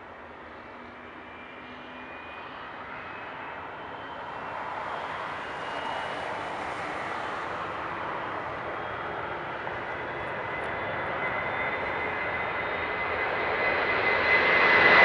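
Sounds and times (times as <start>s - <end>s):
faint high whining tones: 0.0s - 15.0s
jet engines roaring at takeoff: 0.0s - 15.0s.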